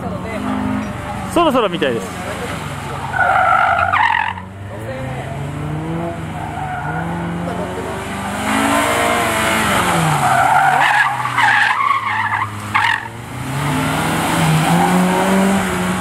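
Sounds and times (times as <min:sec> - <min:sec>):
car engine revving: 0:00.0 - 0:16.0
tyres squealing: 0:02.1 - 0:04.6, 0:06.3 - 0:15.5.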